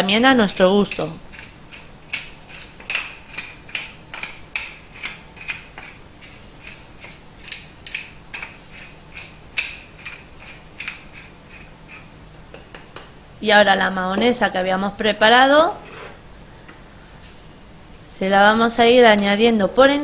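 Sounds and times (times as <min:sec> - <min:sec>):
pepper mill grinding: 0:00.7 - 0:12.1.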